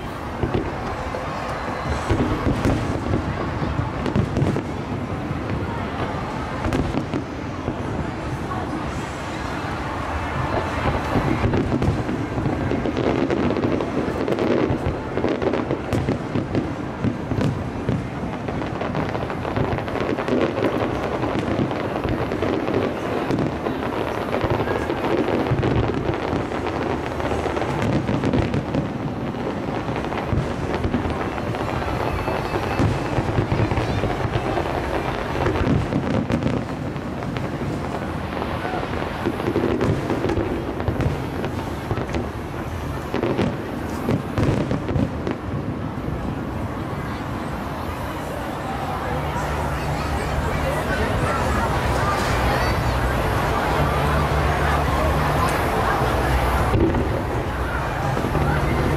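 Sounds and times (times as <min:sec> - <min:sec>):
fireworks crackle: 0:00.0 - 0:58.9.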